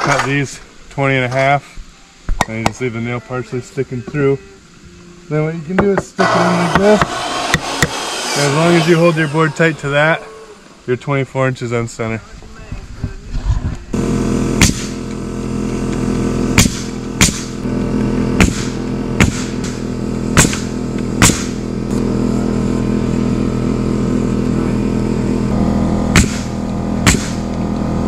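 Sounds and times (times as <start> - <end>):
steady engine hum: 6.2 - 11.2, 12.2 - 28.0
nail gun firing into boards: 6.7 - 8.0, 14.6 - 15.0, 16.6 - 17.6, 18.4 - 19.8, 20.4 - 21.6, 26.1 - 27.5.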